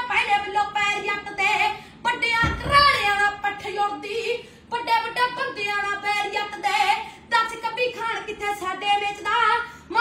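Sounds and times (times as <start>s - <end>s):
boy singing: 0.0s - 10.0s.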